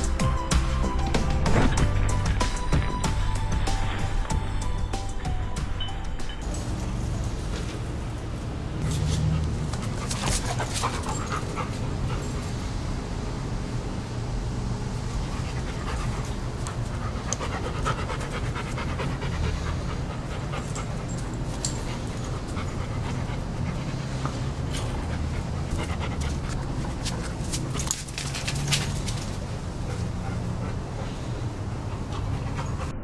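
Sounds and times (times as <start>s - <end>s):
dog panting: 8.8s - 12.8s, 15.0s - 33.0s.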